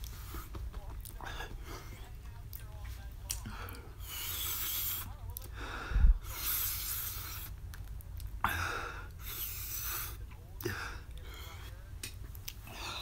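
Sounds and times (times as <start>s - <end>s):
person breathing hard through mouth: 3.4s - 7.6s, 8.4s - 11.8s.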